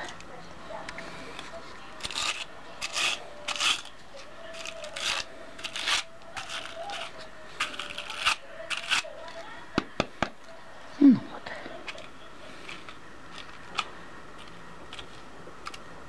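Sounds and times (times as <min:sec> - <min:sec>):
hand carders scratchy strokes: 0:01.0 - 0:03.9.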